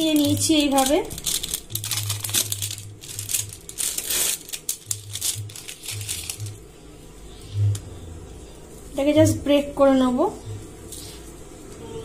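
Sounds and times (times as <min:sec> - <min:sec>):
plastic wrapper crinkling: 0:00.0 - 0:06.7.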